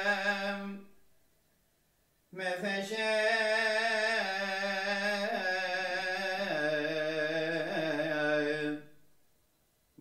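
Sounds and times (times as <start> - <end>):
man chanting: 0.0 - 0.9, 2.4 - 9.0.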